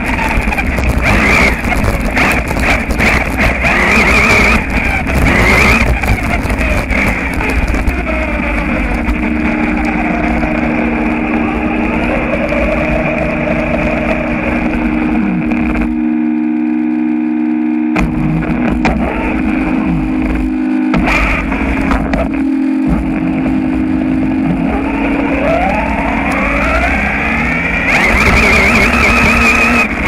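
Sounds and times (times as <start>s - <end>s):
tyres rumbling on gravel: 0.0s - 15.0s
wind: 0.0s - 30.0s
toy car motor whining: 0.2s - 7.5s, 27.6s - 30.0s.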